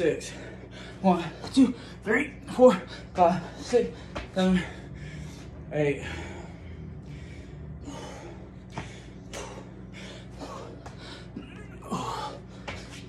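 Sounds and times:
man breathing hard: 0.0s - 2.1s, 2.8s - 13.0s
steady low hum: 0.0s - 13.0s
man grunting: 10.4s - 12.5s.

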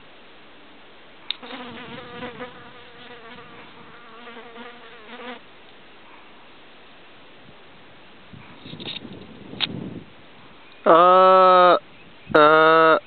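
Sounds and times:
insect buzzing: 1.3s - 5.4s.

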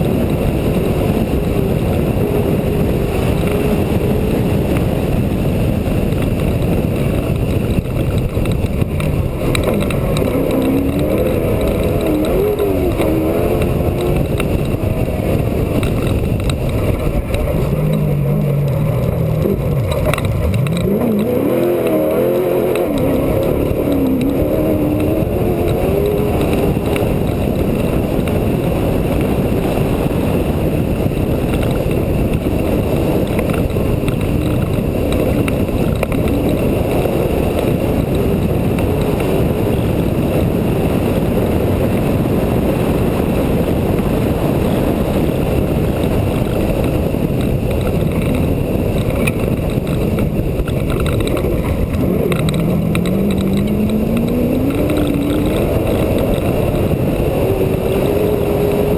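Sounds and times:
low rumble of wind: 0.0s - 58.9s
race truck engine revving: 8.2s - 29.3s, 49.3s - 58.9s.

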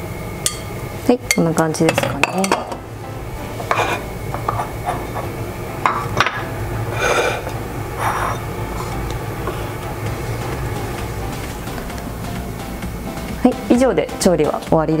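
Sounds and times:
bowls scraping on stone: 3.6s - 9.8s.

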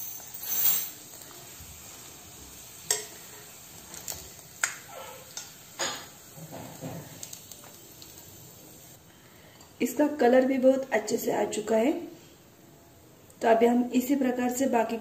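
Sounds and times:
oil sizzling: 0.0s - 9.0s
metal tongs clinking on pot: 2.9s - 3.2s.

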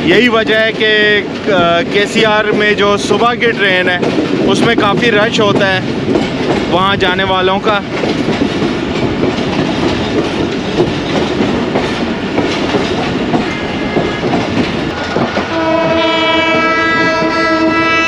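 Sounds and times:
train wheels clacking on rails: 0.0s - 18.0s
train horn blast: 13.4s - 14.5s, 15.5s - 18.0s.

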